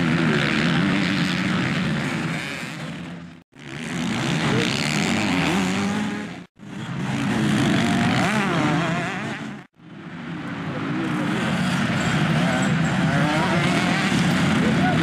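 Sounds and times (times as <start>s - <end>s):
motocross bike engines revving: 0.0s - 15.0s.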